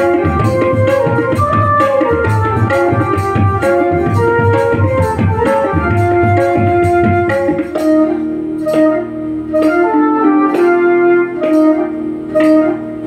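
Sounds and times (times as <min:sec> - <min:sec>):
melody instrument holding notes: 0:00.0 - 0:13.0.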